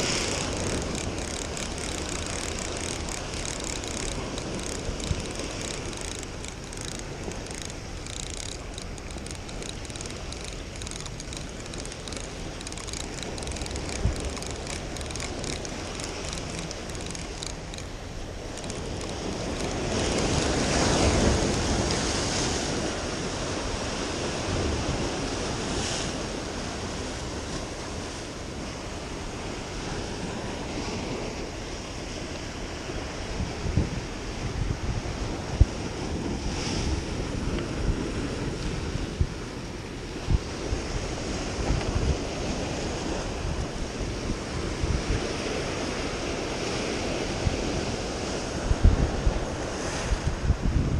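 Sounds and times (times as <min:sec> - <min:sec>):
fishing reel ticking: 0:00.0 - 0:23.1
wind buffeting microphone: 0:00.0 - 0:50.9.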